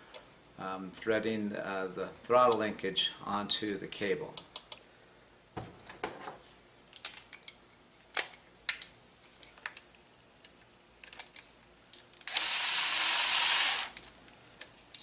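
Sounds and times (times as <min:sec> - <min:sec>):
cordless power driver running: 0:12.2 - 0:14.0.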